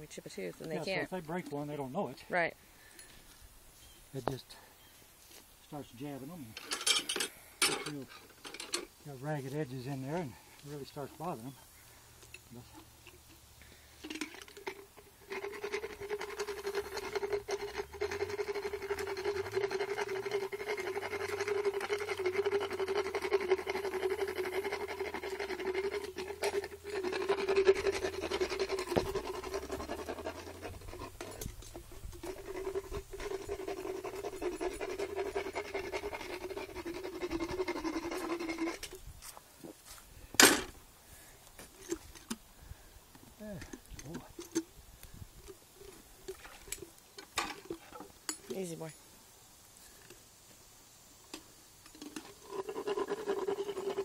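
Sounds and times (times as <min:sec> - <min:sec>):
motorized tooth grinder: 0:15.3 - 0:38.9.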